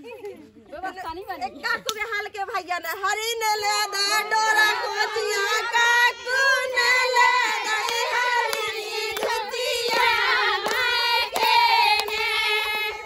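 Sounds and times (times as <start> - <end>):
women singing together: 3.0 - 13.0
hand claps: 7.8 - 13.0.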